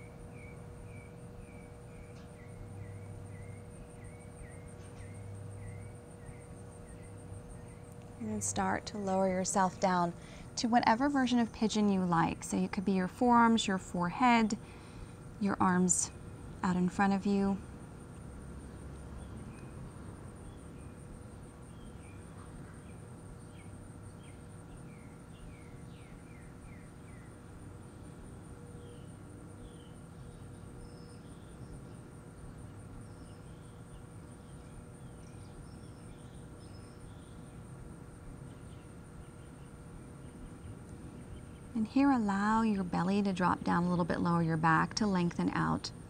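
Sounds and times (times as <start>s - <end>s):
insect trilling: 0.0s - 14.8s.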